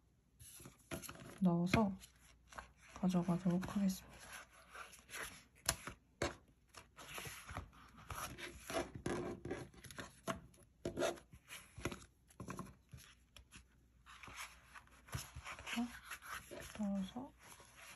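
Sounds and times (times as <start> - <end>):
paper and plastic rustling: 0.4 - 6.0, 11.4 - 17.9.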